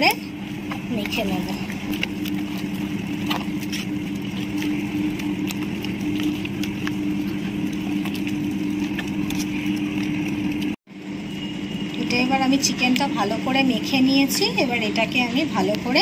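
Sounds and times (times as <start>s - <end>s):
low motor hum: 0.0s - 16.0s
hands squishing meat in marinade: 0.2s - 10.8s.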